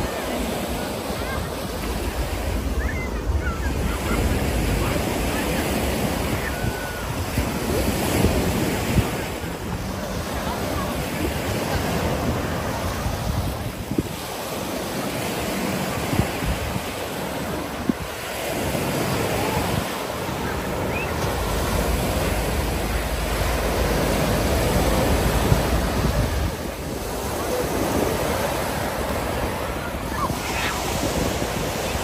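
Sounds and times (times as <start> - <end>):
ocean surf washing ashore: 0.0 - 32.0
wind buffeting microphone: 0.0 - 32.0.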